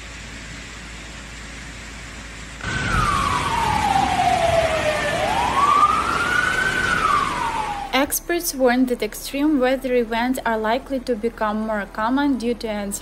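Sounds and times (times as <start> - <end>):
water rushing: 2.6 - 8.0
siren wailing: 2.6 - 8.1.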